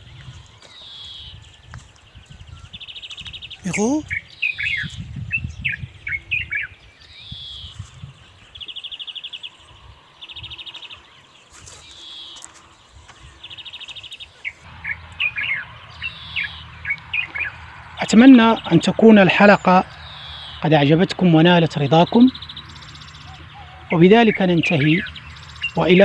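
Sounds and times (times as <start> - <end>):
footsteps on dirt path: 0.0 - 3.9, 10.6 - 18.0
songbirds chirping and trilling: 0.0 - 26.0.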